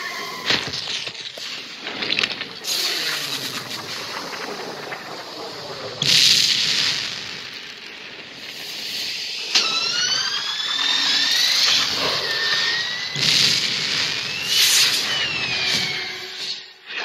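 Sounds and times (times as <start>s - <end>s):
whining gliding tones: 0.0s - 17.0s
rushing jet noise: 1.4s - 17.0s
sudden burst: 2.7s - 16.8s.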